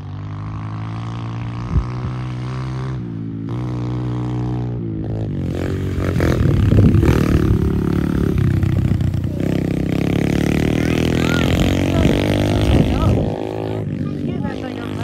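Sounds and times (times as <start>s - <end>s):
dirt bike engine passing: 0.0s - 15.0s.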